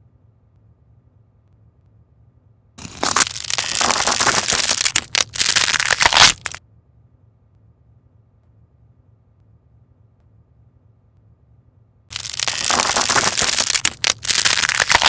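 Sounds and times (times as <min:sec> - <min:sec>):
pencil crunching under cutter: 0:02.8 - 0:06.6, 0:12.1 - 0:15.0.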